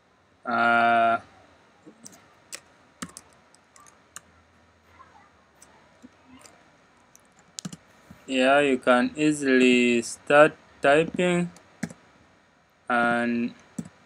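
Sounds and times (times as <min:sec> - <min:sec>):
computer keyboard keystrokes: 0:02.0 - 0:04.2, 0:07.2 - 0:07.8.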